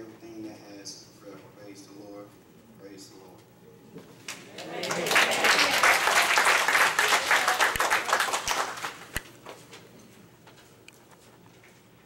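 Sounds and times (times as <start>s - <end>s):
congregation applauding: 4.3s - 9.2s.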